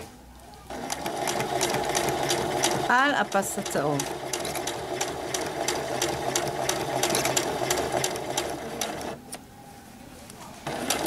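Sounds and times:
sewing machine stitching: 0.7s - 9.2s, 10.6s - 11.0s.

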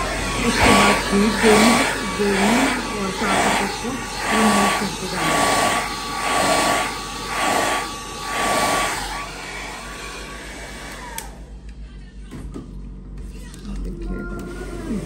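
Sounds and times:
hair dryer blowing: 0.0s - 11.6s.

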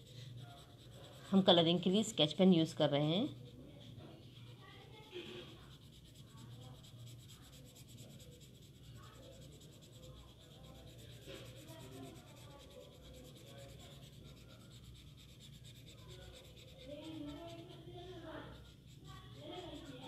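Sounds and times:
pen scratching on paper: 0.0s - 20.0s.

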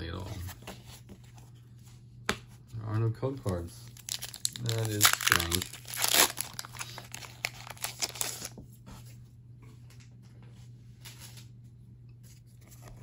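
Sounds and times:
foil wrapper crackling: 3.8s - 8.6s.

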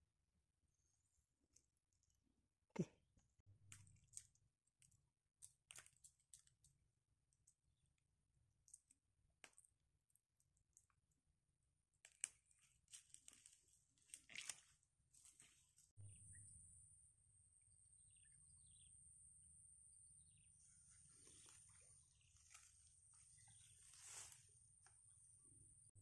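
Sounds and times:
rustling of marsh grass: 12.9s - 15.8s, 21.1s - 24.7s.

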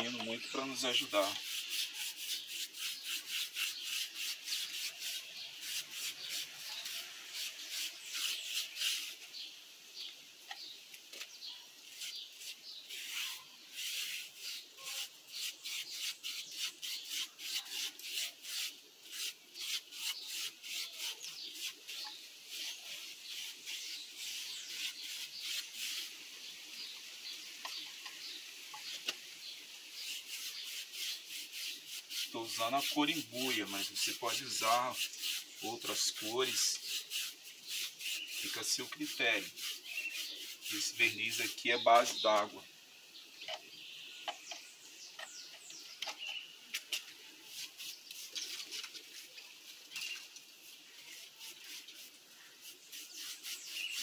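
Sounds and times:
paintbrush scrubbing rough surface: 0.0s - 9.5s, 11.8s - 26.2s, 29.9s - 42.6s, 46.8s - 49.5s, 50.1s - 54.0s.

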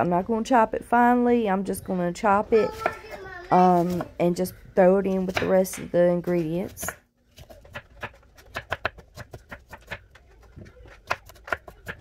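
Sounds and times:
knife chopping on wooden board: 5.3s - 10.2s, 10.8s - 12.0s.

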